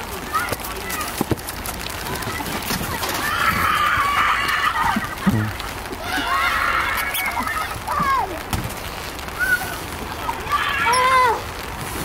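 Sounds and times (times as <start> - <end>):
children screaming: 2.0 - 8.5, 9.2 - 11.7.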